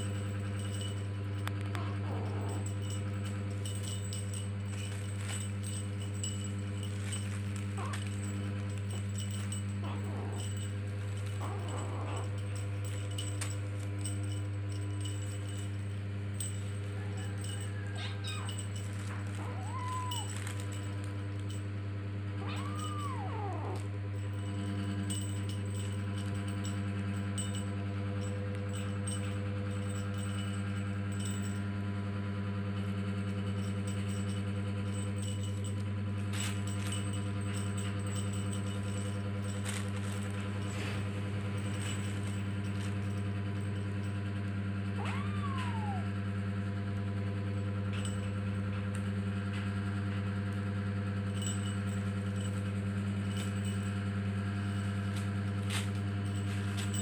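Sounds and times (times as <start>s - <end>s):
steady low hum: 0.0s - 57.0s
kitten mewing: 19.4s - 20.4s, 22.4s - 23.9s, 45.0s - 46.2s.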